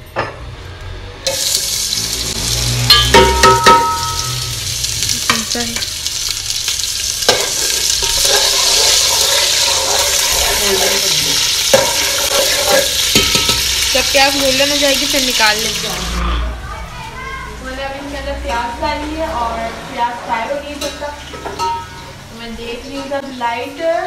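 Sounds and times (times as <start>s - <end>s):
onions sizzling in hot oil: 1.2s - 16.2s
metal spoon clanking on pot: 2.9s - 4.4s, 7.3s - 13.8s, 20.8s - 22.2s.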